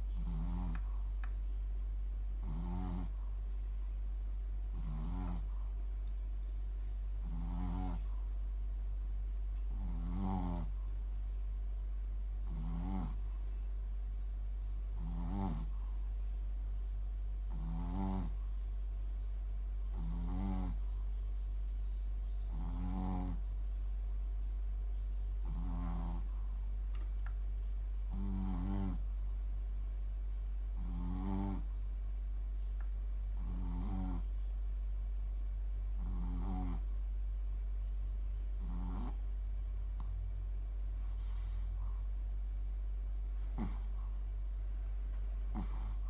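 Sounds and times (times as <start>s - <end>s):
steady low hum: 0.0s - 46.0s
dog snoring: 0.1s - 1.1s, 2.4s - 3.4s, 4.7s - 5.7s, 7.2s - 8.3s, 9.7s - 10.9s, 12.4s - 13.4s, 15.0s - 16.0s, 17.5s - 18.5s, 19.9s - 20.9s, 22.5s - 23.5s, 25.4s - 26.4s, 28.1s - 29.2s, 30.7s - 31.8s, 33.4s - 34.4s, 36.0s - 37.0s, 38.6s - 39.2s, 41.0s - 42.1s, 43.3s - 44.2s, 45.5s - 46.0s.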